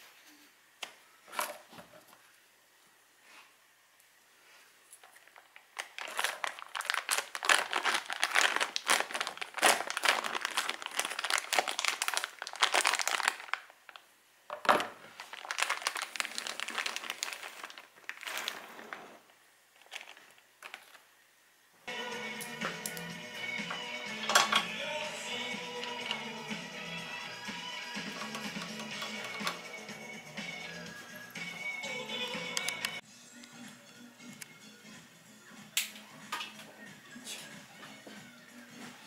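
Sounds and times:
foil crinkling and tearing: 5.2 - 14.0, 15.1 - 19.0, 19.8 - 21.1
background music: 21.8 - 39.0.

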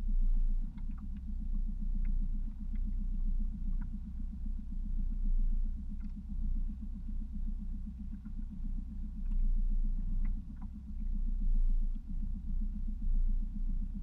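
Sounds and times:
outboard motor running: 0.0 - 14.0.

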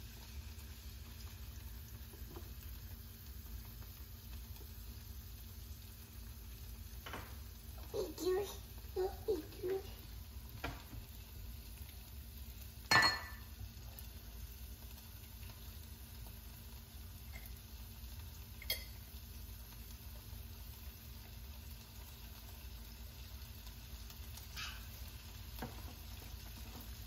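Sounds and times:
green beans sizzling in a pan: 0.0 - 27.0.

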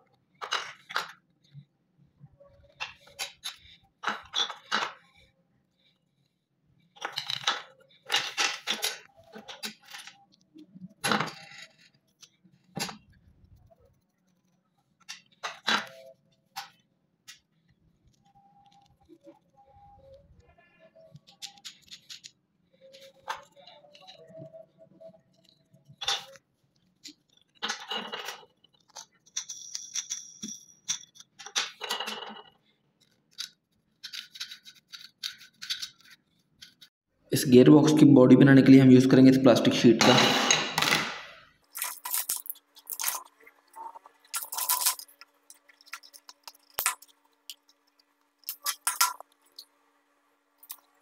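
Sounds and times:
plastic gears clicking: 21.2 - 24.2, 33.0 - 36.9.

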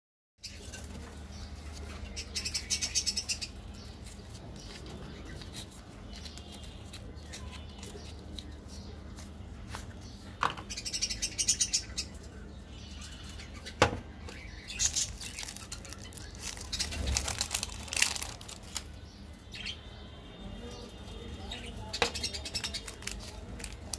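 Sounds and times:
plastic candy wrappers crinkling: 4.1 - 8.8, 14.4 - 19.0, 22.0 - 23.9
plastic candy sticks clicking: 22.5 - 23.9.

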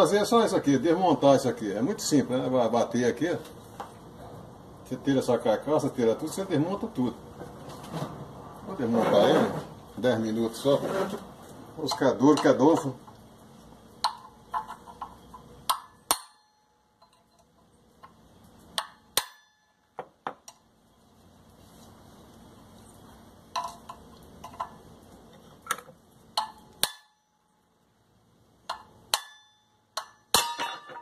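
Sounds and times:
hammer tapping steel bar: 28.7 - 31.0.

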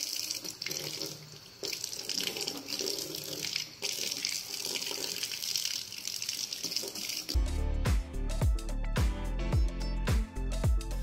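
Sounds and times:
water splashing into metal sink: 0.0 - 7.4.

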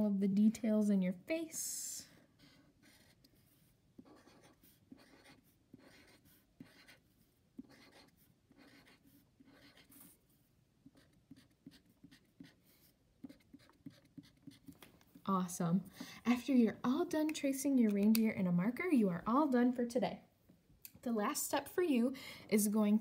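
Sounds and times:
marker scratching on paper: 2.1 - 14.8.

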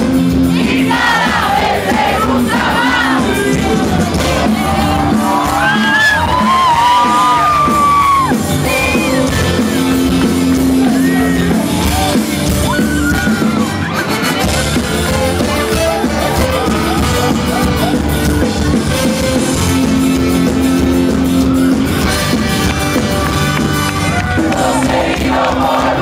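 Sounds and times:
live band playing: 0.0 - 26.0
people yelling: 0.7 - 14.4.

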